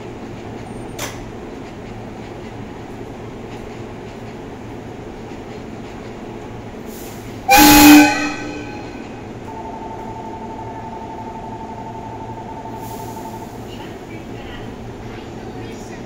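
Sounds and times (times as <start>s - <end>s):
electric train horn blast: 7.5s - 9.3s.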